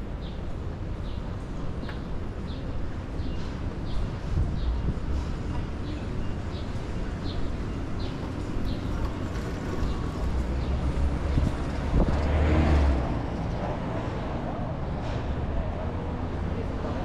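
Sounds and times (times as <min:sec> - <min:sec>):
low rumble of road traffic: 0:00.0 - 0:17.0
vehicle passing close: 0:09.4 - 0:14.4.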